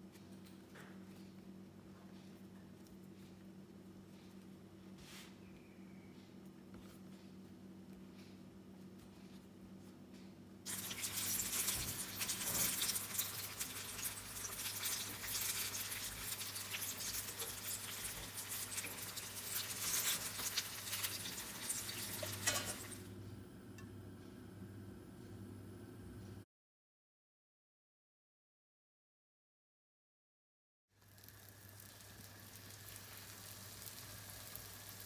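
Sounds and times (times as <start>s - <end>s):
oil crackling and sizzling: 10.6s - 23.1s, 31.0s - 35.0s.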